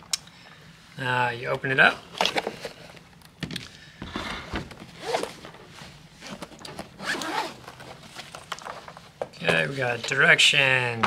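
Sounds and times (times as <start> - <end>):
hard case handling noise: 2.1 - 9.6
zipper being pulled open: 5.0 - 5.4, 7.0 - 7.9.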